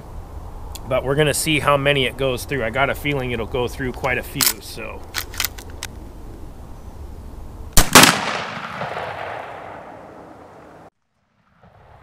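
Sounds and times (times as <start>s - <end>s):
shotgun blast with echo: 7.8s - 10.6s.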